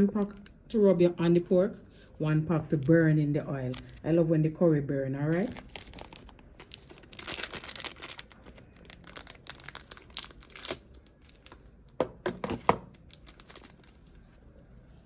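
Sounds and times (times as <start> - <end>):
foil packet crinkling: 3.6 - 4.0, 5.3 - 11.8, 13.0 - 14.6.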